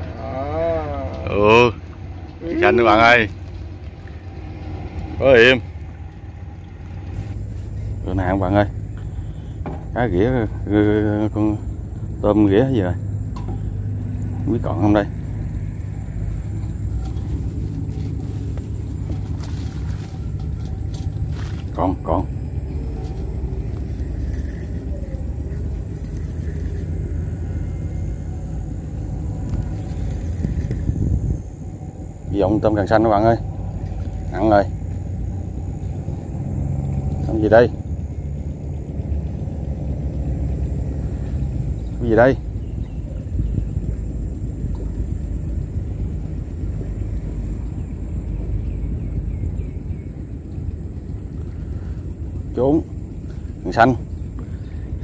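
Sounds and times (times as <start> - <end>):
steady low rumble: 0.0 - 55.0
thin high steady tone: 4.3 - 55.0.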